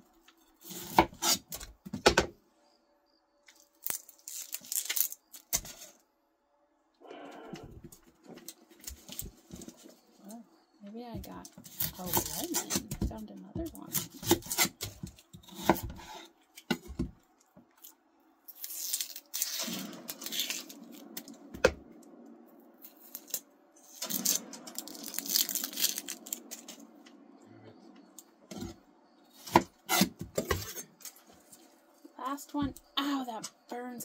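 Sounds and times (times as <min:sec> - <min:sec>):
knife cutting onion on board: 0:00.6 - 0:02.3, 0:11.7 - 0:17.1, 0:29.4 - 0:30.8
onion skin tearing and rustling: 0:03.5 - 0:05.8, 0:17.7 - 0:21.2, 0:22.8 - 0:26.8.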